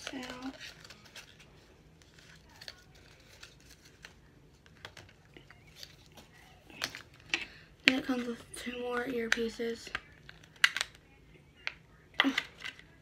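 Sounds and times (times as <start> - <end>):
plastic packaging rustling: 0.0 - 9.4.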